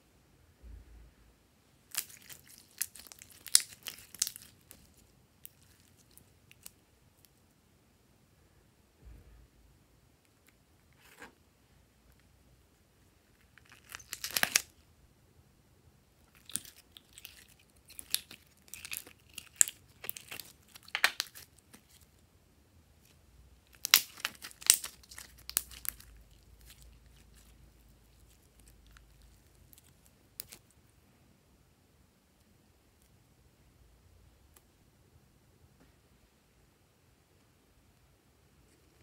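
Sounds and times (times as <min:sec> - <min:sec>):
slime crackling and popping: 0:01.9 - 0:06.8, 0:13.4 - 0:14.8, 0:16.2 - 0:22.1, 0:23.0 - 0:30.7.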